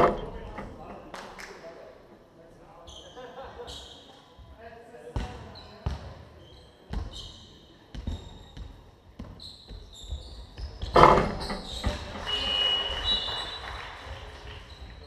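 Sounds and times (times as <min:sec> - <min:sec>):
sneakers squeaking: 0:02.8 - 0:04.6, 0:05.2 - 0:13.6, 0:14.6 - 0:15.0
ball banging on rim: 0:10.8 - 0:12.1.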